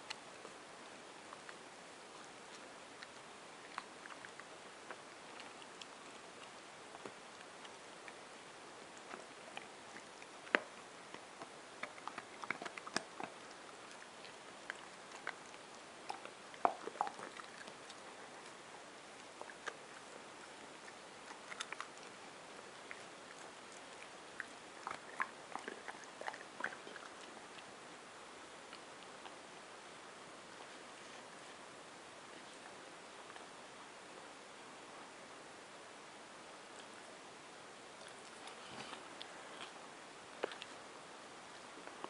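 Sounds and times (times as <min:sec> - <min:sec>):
dog gnawing on a chew: 0:01.2 - 0:27.8, 0:38.0 - 0:40.8.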